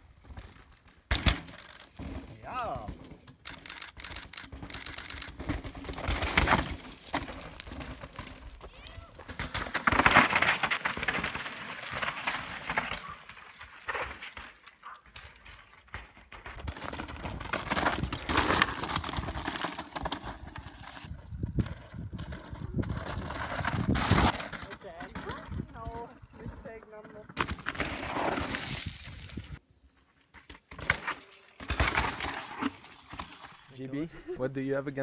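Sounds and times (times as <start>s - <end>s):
bike clattering: 0.1s - 28.5s
bike tyres skidding on gravel: 5.4s - 14.6s, 16.0s - 25.2s, 27.4s - 29.6s, 31.0s - 33.8s.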